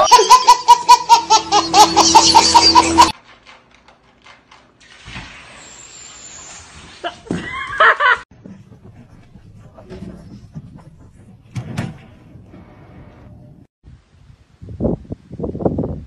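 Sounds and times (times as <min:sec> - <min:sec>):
baby laughing: 0:00.0 - 0:03.2.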